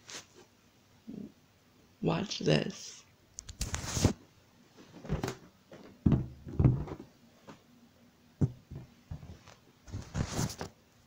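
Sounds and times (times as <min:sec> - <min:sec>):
balloon hollow thumps: 0:06.0 - 0:07.1, 0:08.4 - 0:09.5.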